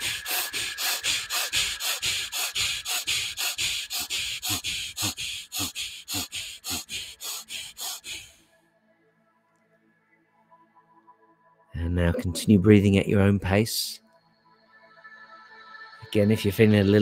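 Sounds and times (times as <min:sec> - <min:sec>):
person breathing rapidly through nose: 0:00.0 - 0:08.5.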